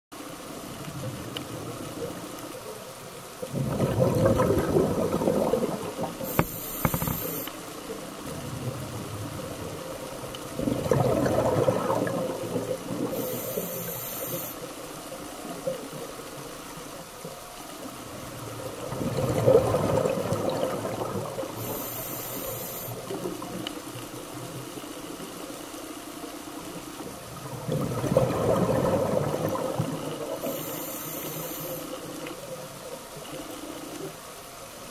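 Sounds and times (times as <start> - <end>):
exhaled bubbles underwater: 0.4 - 34.9
regulator hiss on inhale: 6.2 - 7.8, 13.0 - 15.0, 21.5 - 23.2, 30.2 - 32.4.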